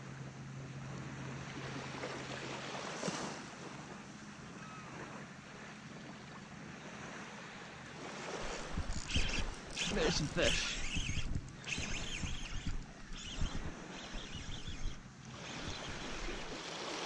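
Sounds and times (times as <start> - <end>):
small waves lapping on sand: 0.0 - 17.0
wind on microphone: 8.3 - 16.6.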